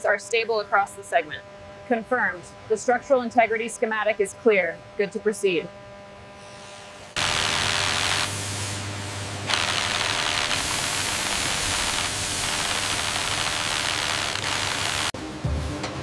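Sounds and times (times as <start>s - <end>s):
power tool cutting metal: 7.2s - 8.5s, 9.5s - 15.2s.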